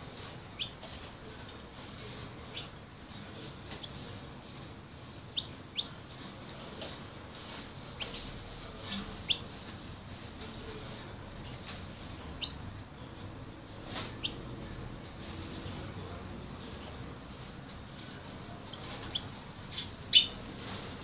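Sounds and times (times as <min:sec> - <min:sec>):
songbird chirping: 0:00.5 - 0:00.8, 0:02.4 - 0:02.8, 0:03.7 - 0:04.1, 0:05.3 - 0:06.0, 0:07.0 - 0:08.3, 0:08.9 - 0:09.5, 0:12.3 - 0:12.6, 0:14.2 - 0:14.6, 0:18.5 - 0:21.0.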